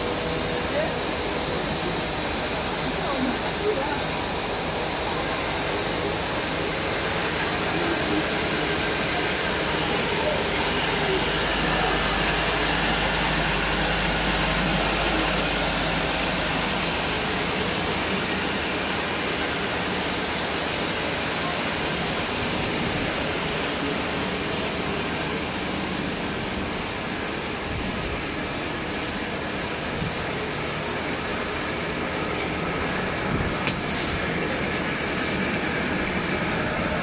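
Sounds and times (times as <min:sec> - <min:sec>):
dense machine noise: 0:00.0 - 0:37.0.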